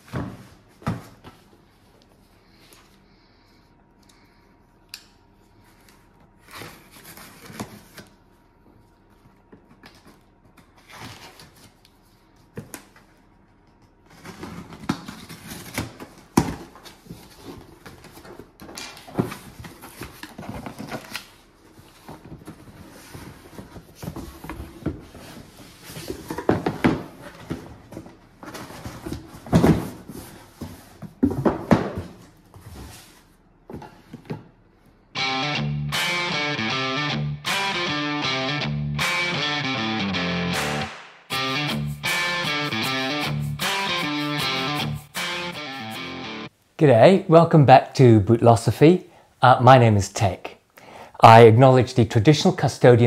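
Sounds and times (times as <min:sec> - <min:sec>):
boxes handled and slid: 0:16.6 - 0:34.4.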